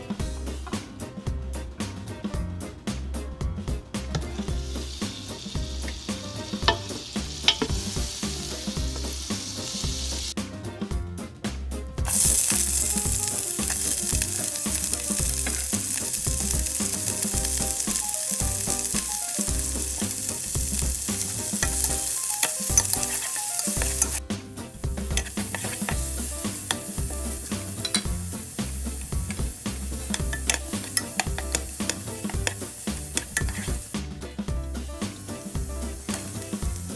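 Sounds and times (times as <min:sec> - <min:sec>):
onions sizzling in hot oil: 0:04.2 - 0:10.4, 0:12.1 - 0:36.9
wooden spoon stirring: 0:12.1 - 0:24.2, 0:25.0 - 0:33.9.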